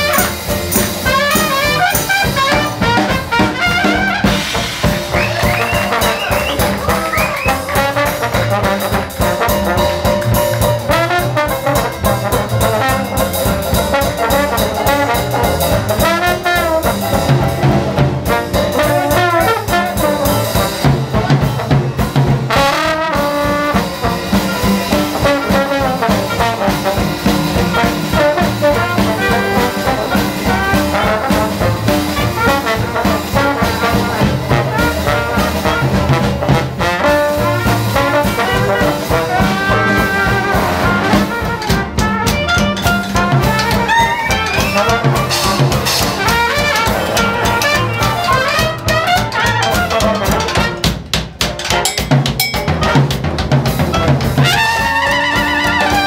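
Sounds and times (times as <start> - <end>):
trombone solo: 0.0 - 51.0, 52.6 - 56.0
drum kit: 0.0 - 56.0
trumpet: 0.0 - 56.0
banjo: 42.2 - 50.9.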